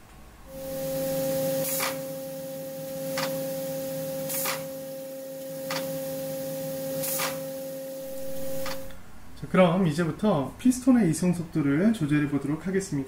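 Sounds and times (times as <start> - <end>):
machine whining: 0.5 - 9.0
limit switch short sharp noise: 7.0 - 9.0.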